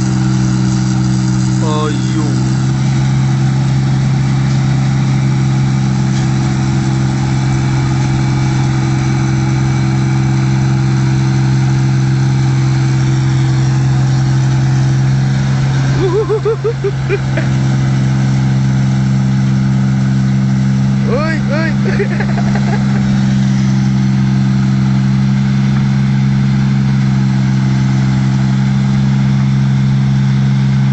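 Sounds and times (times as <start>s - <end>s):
combine harvester engine drone: 0.0s - 30.9s
short rising calls: 16.0s - 17.6s.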